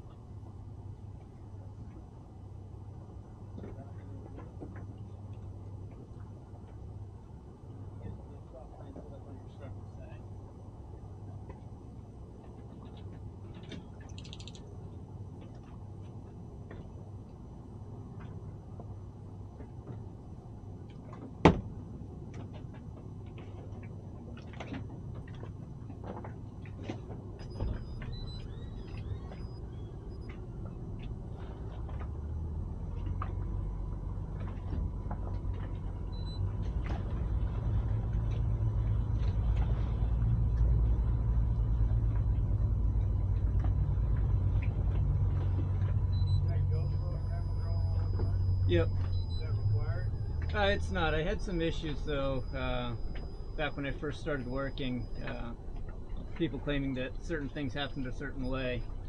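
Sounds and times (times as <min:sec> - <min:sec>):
boat engine idling: 0:00.0 - 0:59.0
small clicks and knocks: 0:12.8 - 0:14.7.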